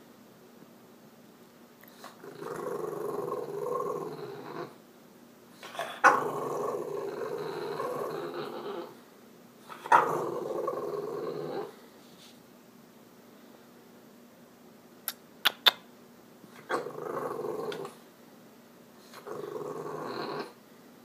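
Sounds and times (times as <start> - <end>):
dog growling grumbles: 1.9 - 4.8, 5.6 - 9.0, 9.7 - 11.8, 16.6 - 18.0, 19.0 - 20.6.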